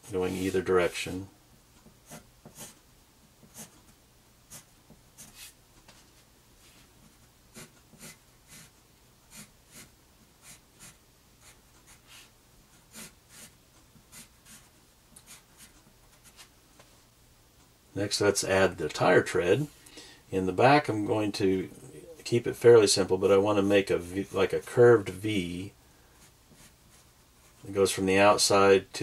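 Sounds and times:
pencil scratching on paper: 1.8 - 2.8, 3.4 - 3.9, 4.5 - 5.6, 6.7 - 16.5, 26.2 - 27.6.

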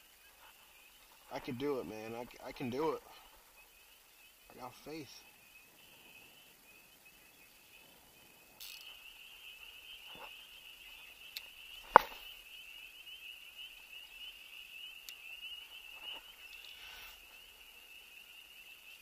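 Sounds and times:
high-pitched frog chorus: 0.0 - 19.0
sharp knocks: 11.9 - 12.2.

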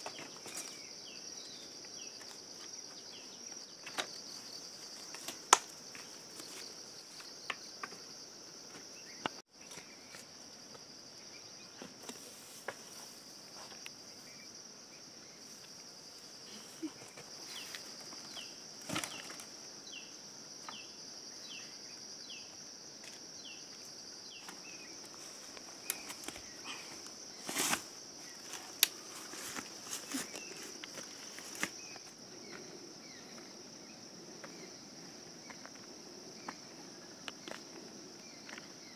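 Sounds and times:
insects buzzing: 0.0 - 38.9.

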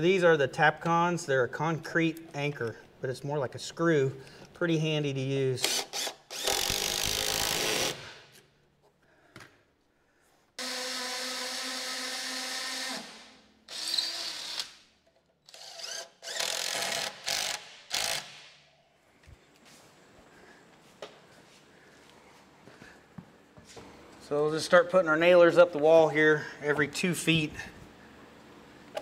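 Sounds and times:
impact driver driving screws: 5.6 - 8.2, 15.5 - 18.6.

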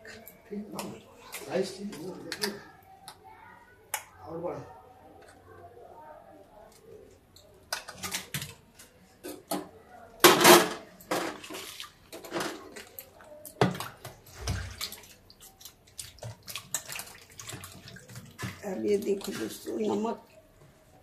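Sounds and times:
water splashing in a saucepan: 6.9 - 21.0.

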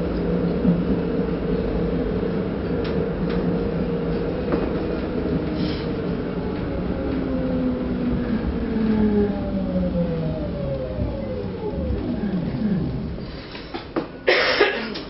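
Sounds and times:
tram rumble: 0.0 - 15.0
wheels clicking over rails: 2.4 - 14.2
whining motor: 7.7 - 13.4.

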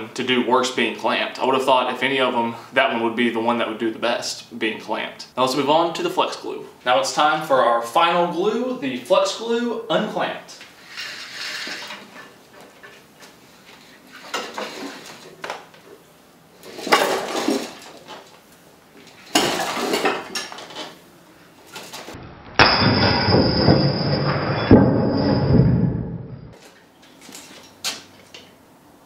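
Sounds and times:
plates crashing onto concrete floor: 16.7 - 18.3, 19.3 - 20.9.

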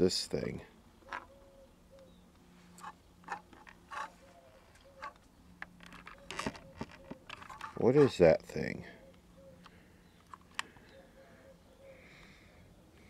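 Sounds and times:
small parts clicking and tapping: 2.8 - 4.1, 4.8 - 8.2, 9.6 - 10.8.

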